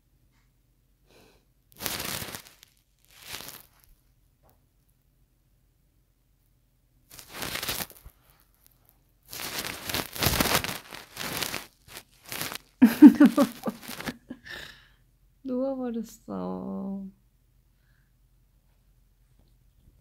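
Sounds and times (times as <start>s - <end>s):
rustling and crinkling: 1.7s - 4.6s, 7.1s - 14.4s.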